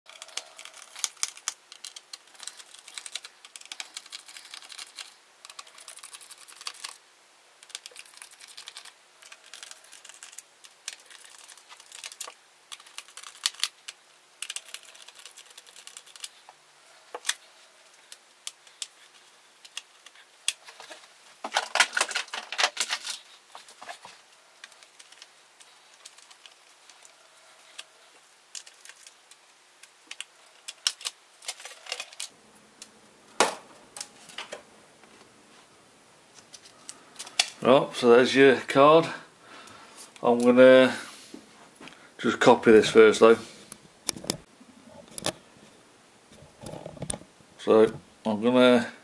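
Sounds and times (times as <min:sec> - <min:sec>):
screwdriver clicking and scraping: 0:18.1 - 0:21.0.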